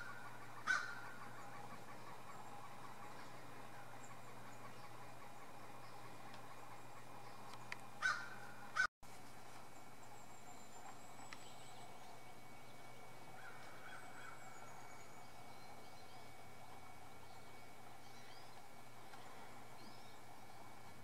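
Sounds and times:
loud honking bird calls: 0.0s - 2.6s, 8.0s - 8.9s
steady outdoor hiss: 0.0s - 21.0s.

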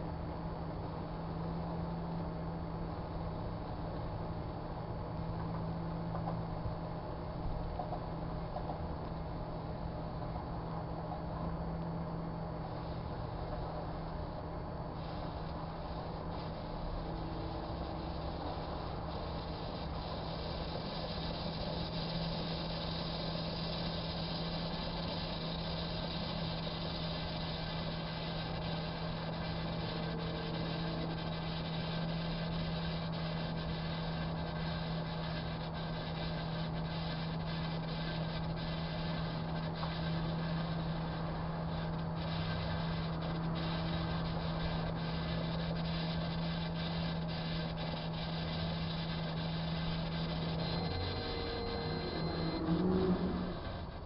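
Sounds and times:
microwave oven humming: 0.0s - 54.0s
faint crackling ticks: 17.6s - 53.8s.

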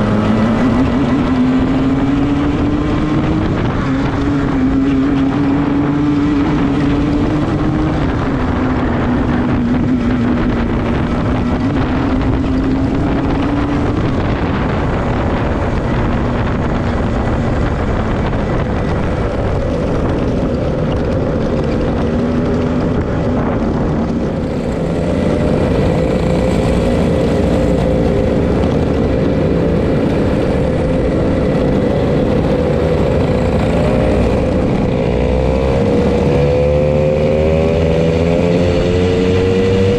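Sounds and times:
kart engine revving: 0.0s - 39.9s
wind noise on microphone: 0.0s - 39.9s.

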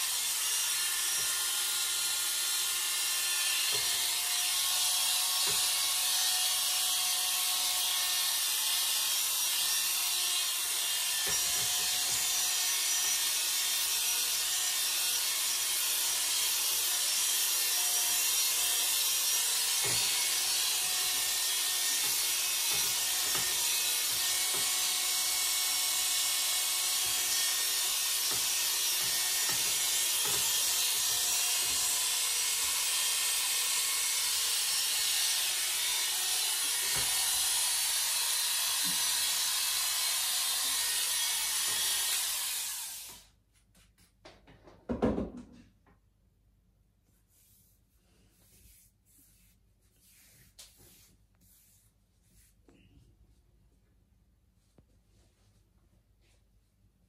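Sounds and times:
electric hair clipper buzzing: 0.0s - 43.3s.

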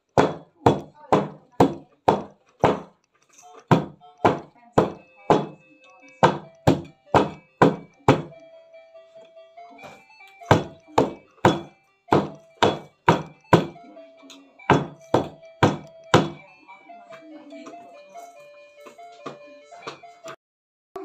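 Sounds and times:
light background music: 0.0s - 20.4s.

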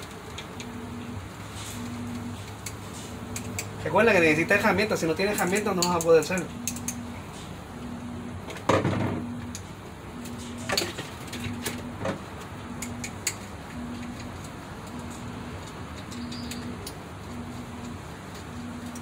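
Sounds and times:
screwdriver clicking on metal: 2.5s - 3.8s, 5.2s - 7.0s, 14.0s - 17.0s
low pulsing tone: 6.4s - 8.5s, 9.1s - 19.0s.

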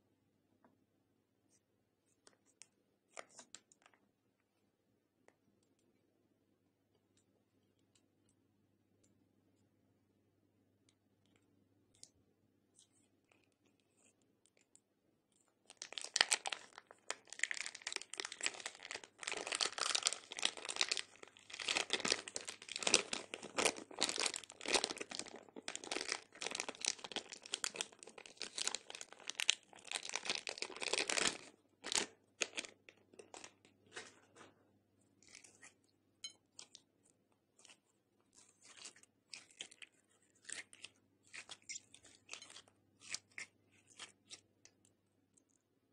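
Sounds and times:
plastic bag crinkling: 15.7s - 33.6s.

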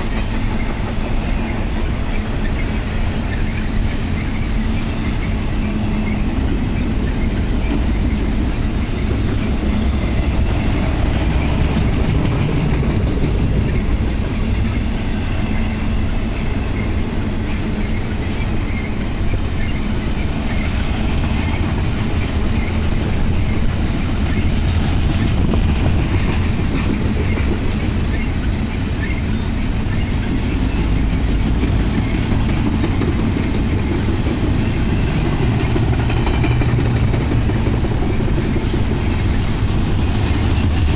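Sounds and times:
freight train wheels rumbling: 0.0s - 40.9s.

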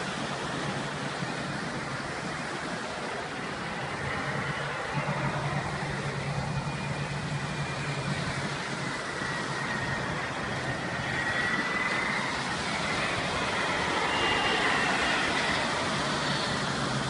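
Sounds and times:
jet aircraft flying low: 0.0s - 17.0s.

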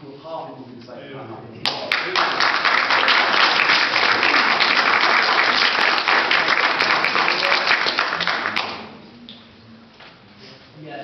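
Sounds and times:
many people clapping: 1.6s - 9.0s.

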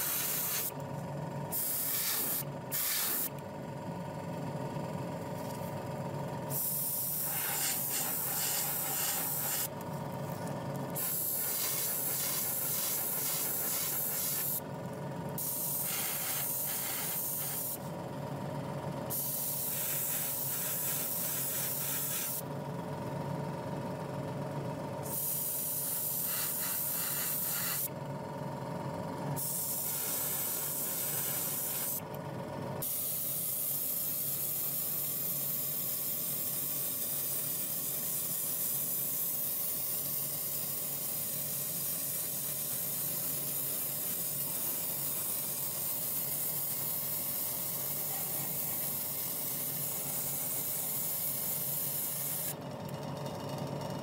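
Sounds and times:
airbrush spraying hiss: 0.0s - 0.7s, 1.5s - 3.3s, 6.5s - 9.7s, 11.0s - 14.6s, 15.4s - 17.8s, 19.1s - 22.4s, 25.1s - 27.9s, 29.4s - 32.0s, 32.8s - 52.5s
steady hum: 0.0s - 18.3s.

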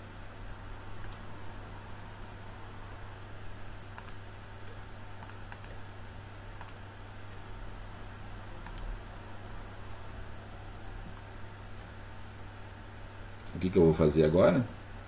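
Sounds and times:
low electrical hum: 0.0s - 15.0s
computer control clicks: 1.0s - 1.2s, 3.9s - 4.2s, 5.2s - 5.8s, 6.6s - 6.8s, 8.6s - 8.9s.

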